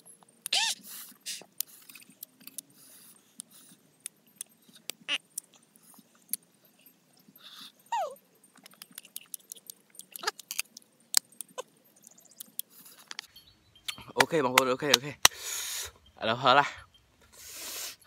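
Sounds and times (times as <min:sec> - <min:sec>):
short falling squeal-like cry: 0:00.5 - 0:00.8
fruit crunching and chewing: 0:08.6 - 0:11.7.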